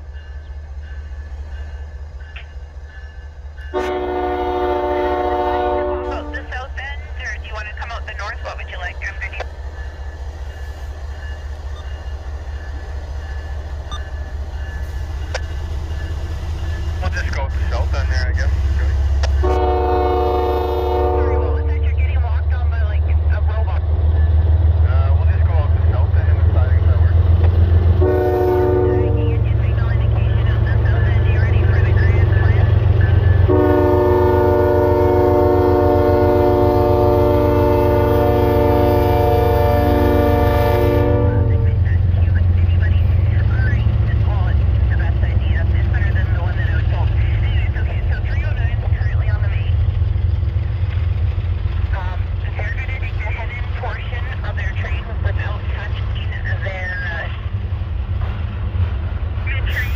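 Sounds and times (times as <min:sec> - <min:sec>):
diesel locomotive engine rumble: 0:00.0 - 0:59.9
locomotive air horn chord: 0:03.7 - 0:06.3, 0:19.4 - 0:21.7, 0:28.0 - 0:29.4, 0:33.5 - 0:41.8.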